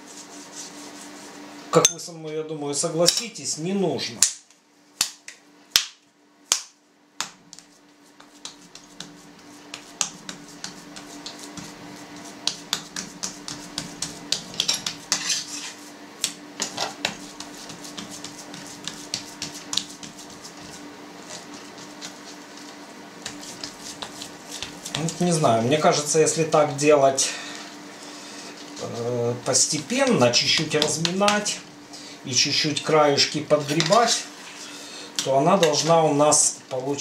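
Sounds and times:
faint steady hum: 0.0 - 37.0
hand slapping raw meat: 4.2 - 11.8, 12.4 - 15.2
fingers patting meat on board: 5.0 - 15.2, 16.2 - 25.4, 29.7 - 31.6.

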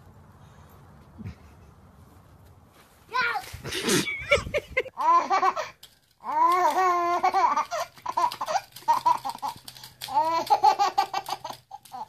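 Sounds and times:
baby laughing: 3.7 - 12.0.

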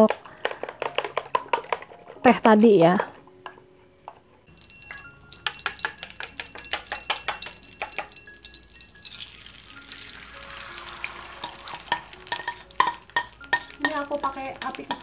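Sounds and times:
hot oil crackling and popping: 0.0 - 1.9, 4.5 - 15.0
egg sizzling in oil: 4.5 - 15.0.

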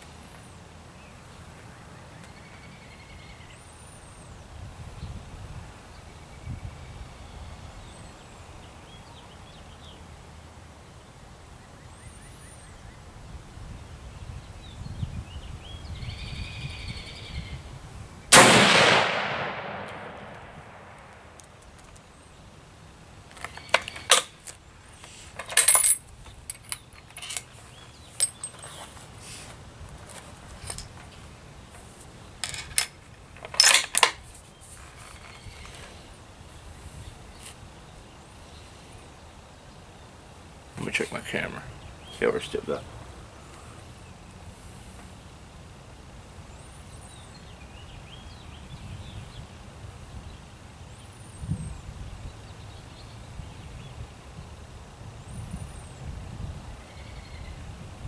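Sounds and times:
rifle shot with echo: 18.3 - 21.4.

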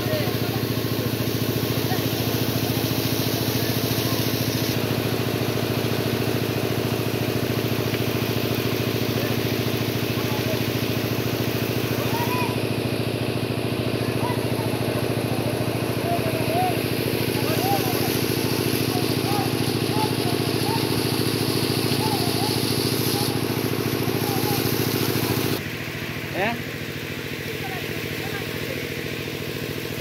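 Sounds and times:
small engine running: 0.0 - 30.0.

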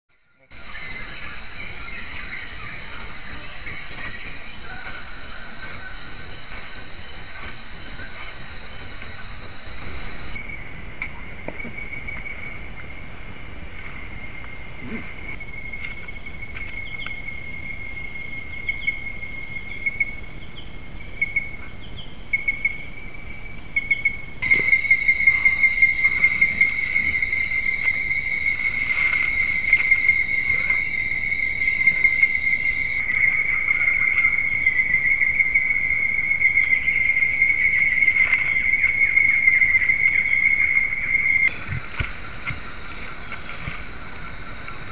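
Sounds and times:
crickets and katydids trilling: 0.4 - 44.9
faint insect clicks: 5.6 - 17.6, 23.5 - 34.4, 38.0 - 44.9.

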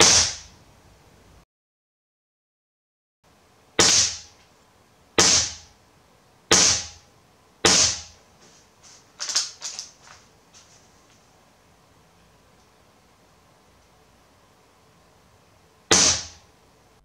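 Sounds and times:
air rifle shots: 0.0 - 0.6, 3.8 - 4.4, 5.2 - 5.7, 6.5 - 7.0, 7.6 - 8.2, 15.9 - 16.5.

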